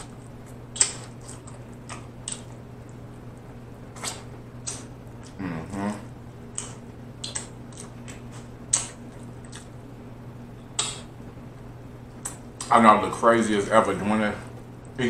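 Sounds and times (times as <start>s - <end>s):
steady low hum: 0.0s - 15.0s
wet lip smacks and sucking: 3.9s - 5.4s, 6.6s - 9.7s
person humming: 5.3s - 6.1s.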